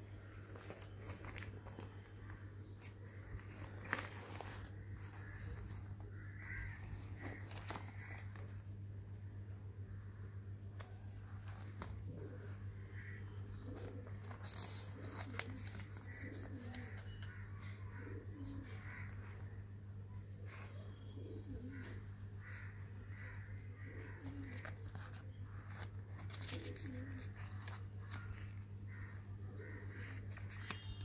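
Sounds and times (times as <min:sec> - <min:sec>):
steady low hum: 0:00.0 - 0:31.0
bag rustling: 0:00.1 - 0:08.6.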